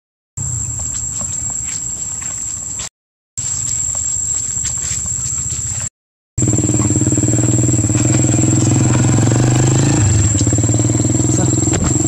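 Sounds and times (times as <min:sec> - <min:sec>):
engine running steadily: 0:06.4 - 0:12.0
high whine: 0:06.4 - 0:12.0.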